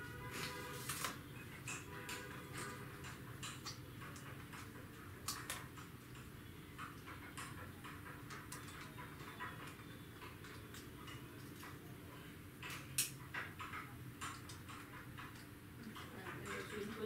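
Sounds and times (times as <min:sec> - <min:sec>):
clicks of small hard parts: 0:00.4 - 0:17.0.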